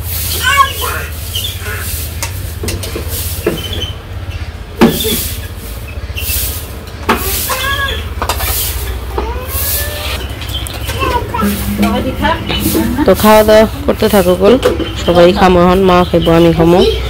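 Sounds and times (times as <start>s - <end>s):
low rumble: 11.0s - 14.4s.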